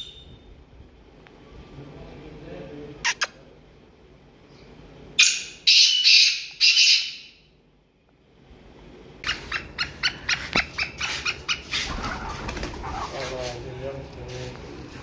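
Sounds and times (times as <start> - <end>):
bird harsh rasping calls: 5.2 - 7.4, 9.2 - 13.2.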